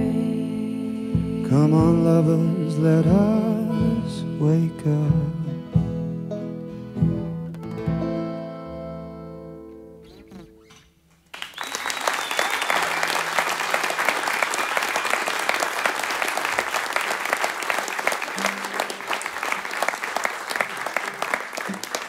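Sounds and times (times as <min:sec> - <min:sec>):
acoustic guitar song: 0:00.0 - 0:11.1
audience applauding: 0:11.2 - 0:22.0.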